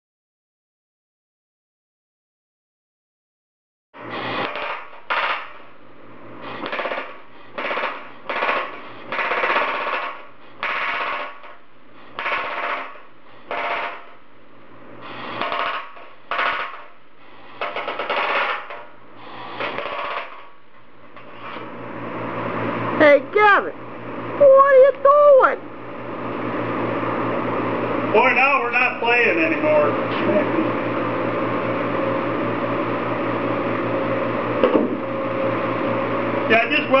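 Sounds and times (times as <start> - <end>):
air hammer rattling on steel sheet: 4.1 - 5.7, 6.4 - 14.2, 15.0 - 20.6
low steady hum: 5.6 - 9.5, 11.4 - 17.9.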